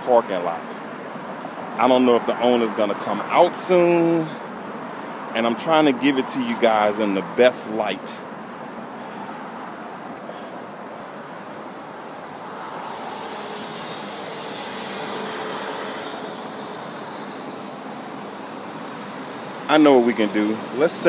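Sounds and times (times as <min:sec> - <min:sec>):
road traffic noise: 0:00.0 - 0:21.0
vehicle passing by: 0:11.6 - 0:21.0.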